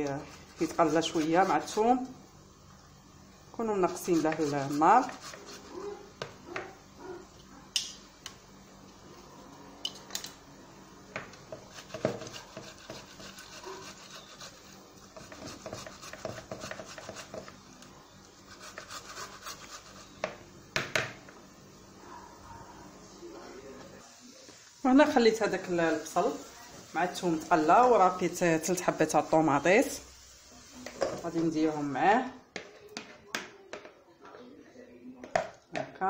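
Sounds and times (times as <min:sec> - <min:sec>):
tomatoes rasping on a grater: 0:00.0 - 0:02.0, 0:03.7 - 0:06.0, 0:11.5 - 0:17.6, 0:18.4 - 0:20.2
grater knocking on bowl: 0:04.0 - 0:05.7, 0:11.5 - 0:14.2, 0:15.1 - 0:17.5.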